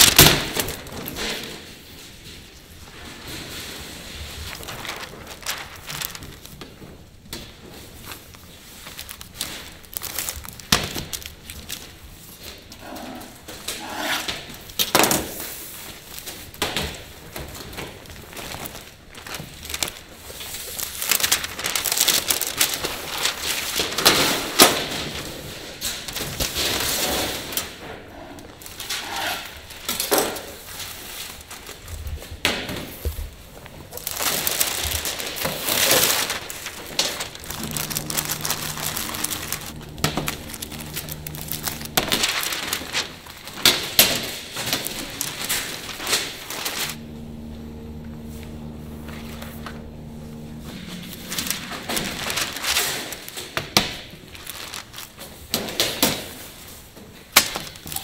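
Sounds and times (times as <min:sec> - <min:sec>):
rustling handling noises: 0:00.5 - 0:12.4, 0:33.9 - 0:53.3
machine hum: 0:36.3 - 0:44.0, 0:44.9 - 0:53.3.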